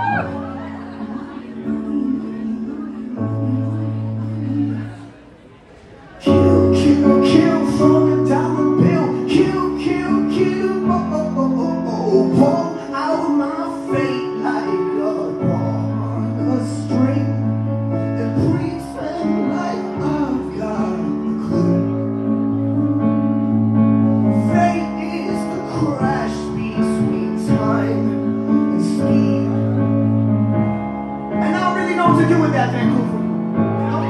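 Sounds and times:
lead vocal singing: 0:00.0 - 0:05.2, 0:06.2 - 0:22.3, 0:24.2 - 0:29.9
synth keyboard bass and chords: 0:06.3 - 0:34.0.

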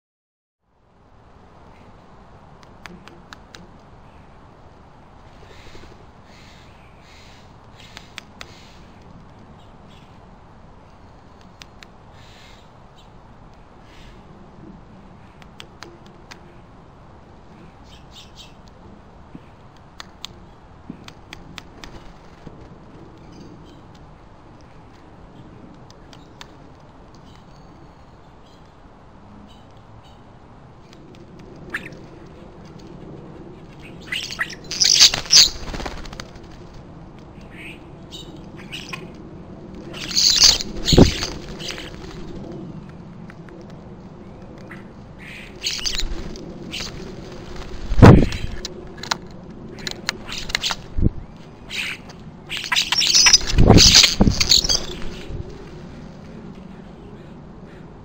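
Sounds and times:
background hiss: 0:00.7 - 0:58.0
small birds chirping: 0:05.3 - 0:10.2, 0:17.5 - 0:22.3, 0:23.1 - 0:31.0, 0:33.5 - 0:36.6, 0:37.3 - 0:39.2, 0:39.8 - 0:43.0, 0:44.2 - 0:48.7, 0:49.7 - 0:57.9
wings flapping: 0:21.0 - 0:24.0, 0:30.9 - 0:37.4, 0:38.6 - 0:43.8, 0:44.6 - 0:56.6
starlings squawking: 0:33.9 - 0:36.1, 0:39.9 - 0:42.2, 0:45.2 - 0:48.6, 0:51.6 - 0:55.4.

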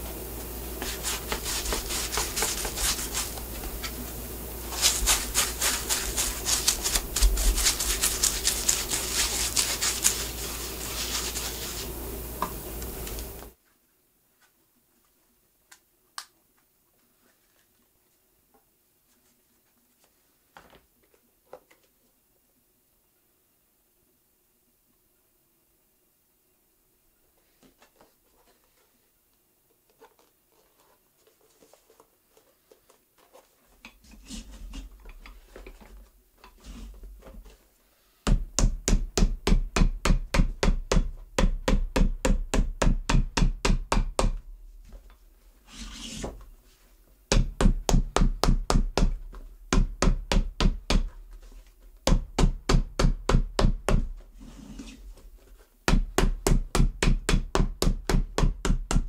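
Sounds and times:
soft rubbing and handling: 0:00.0 - 0:15.4, 0:16.6 - 0:22.2, 0:27.1 - 0:38.3, 0:44.6 - 0:47.3, 0:51.0 - 0:52.1, 0:54.1 - 0:55.9
hammer striking leather sole: 0:38.3 - 0:44.4, 0:47.3 - 0:51.1.

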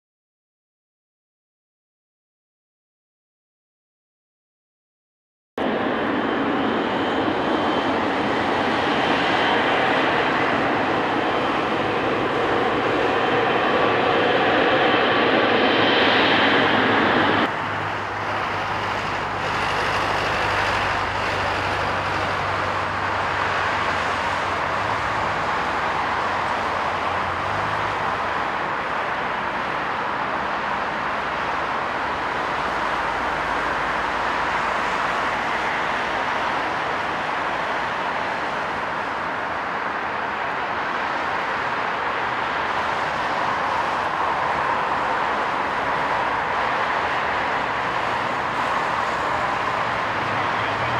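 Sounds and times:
taxiing jet whining: 0:05.6 - 0:27.4
jet engines on approach: 0:05.6 - 0:50.9.

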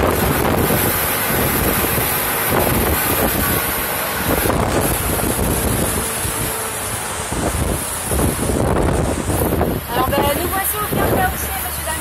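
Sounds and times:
boat motor running: 0:00.0 - 0:12.0
wind buffeting microphone: 0:00.0 - 0:12.0.

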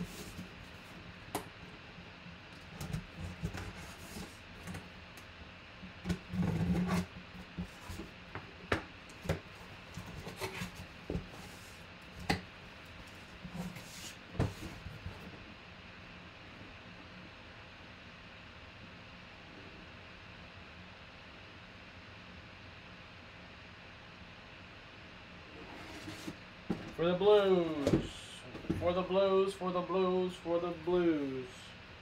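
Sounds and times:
cardboard flaps scraping: 0:00.0 - 0:01.0, 0:02.6 - 0:04.9, 0:06.0 - 0:15.3, 0:25.6 - 0:29.1
cardboard knocks and rustles: 0:13.4 - 0:15.2, 0:25.8 - 0:27.0.

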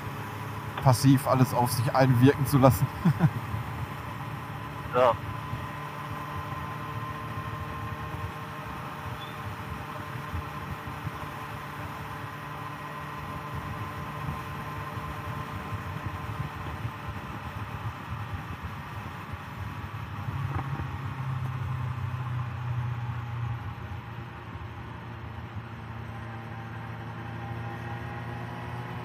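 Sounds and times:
motorcycle engine running: 0:01.8 - 0:22.0.

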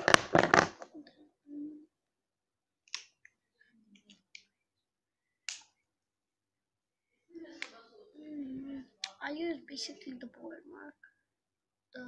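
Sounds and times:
marker cap clicking: 0:02.9 - 0:03.3, 0:05.5 - 0:05.7.

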